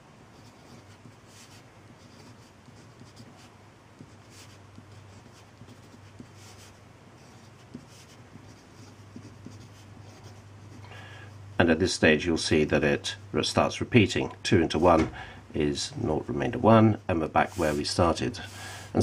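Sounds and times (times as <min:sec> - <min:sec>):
low steady hum: 0:00.0 - 0:19.0
pen scratching on paper: 0:00.3 - 0:10.8.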